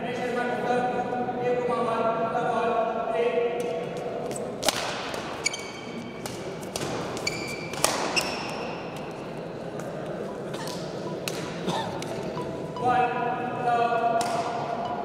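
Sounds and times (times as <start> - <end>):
racket striking shuttlecock: 4.6 - 5.4, 6.2 - 8.6, 10.6 - 12.2, 14.2 - 14.7
shoes squeaking on court: 5.4 - 6.1, 7.1 - 9.2, 9.8 - 12.4.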